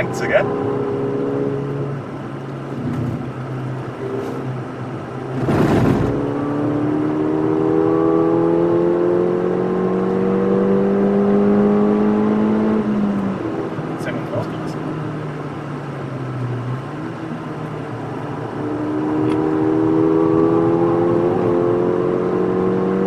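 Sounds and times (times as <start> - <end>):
car engine pulling hard: 0.0 - 23.0.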